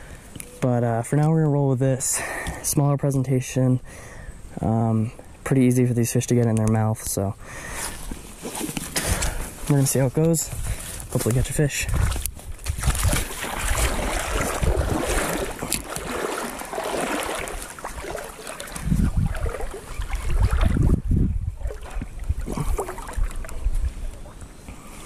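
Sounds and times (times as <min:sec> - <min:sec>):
wind buffeting microphone: 0:10.4 - 0:24.3.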